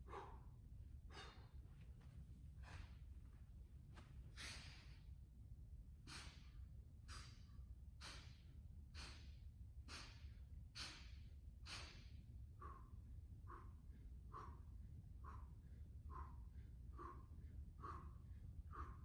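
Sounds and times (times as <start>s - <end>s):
man breathing out hard: 0.0s - 1.6s.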